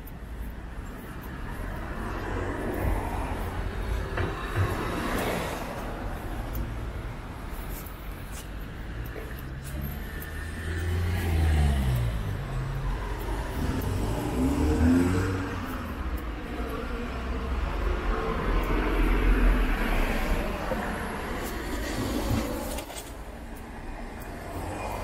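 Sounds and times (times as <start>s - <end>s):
traffic hum: 0.0s - 25.0s
cars driving past on wet street: 0.8s - 25.0s.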